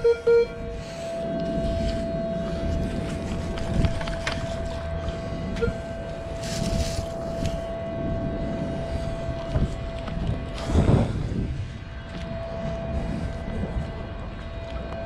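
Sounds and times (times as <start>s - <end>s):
metal detector beep: 0.0s - 2.1s, 5.5s - 6.2s
metal detector tone: 0.0s - 3.9s, 5.5s - 7.6s.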